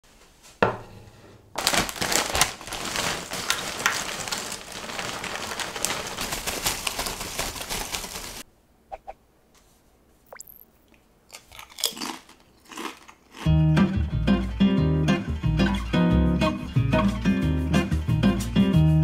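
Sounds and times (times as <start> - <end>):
chip bag crinkling: 1.6 - 8.5, 11.3 - 13.5.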